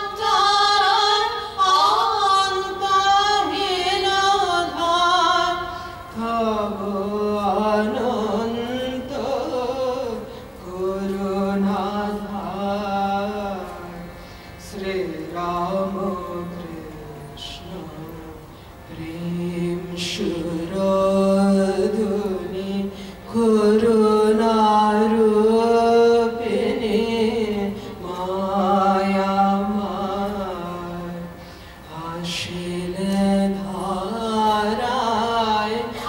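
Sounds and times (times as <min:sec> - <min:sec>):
harmonium drone: 0:00.0 - 0:36.0
man singing a chant: 0:00.0 - 0:36.0.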